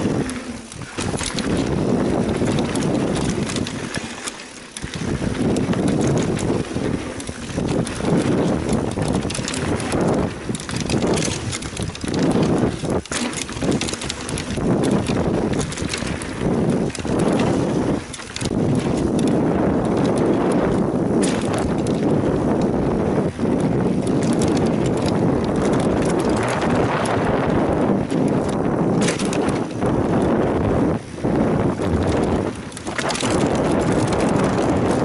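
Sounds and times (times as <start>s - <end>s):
bike rattling and knocking: 0.0s - 35.0s
bike tyres rumbling on dirt: 0.0s - 35.0s
wind on microphone: 0.0s - 35.0s.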